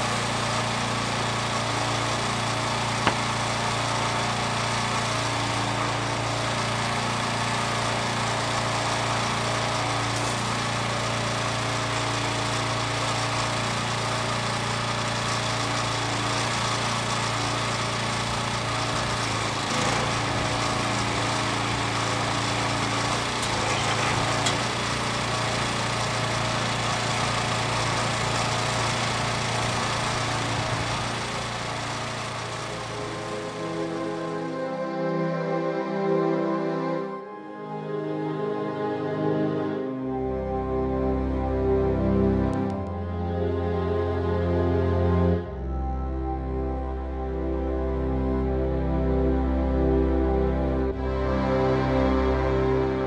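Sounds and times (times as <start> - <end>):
engine running steadily: 0.0 - 34.8
light knock: 3.0 - 3.3.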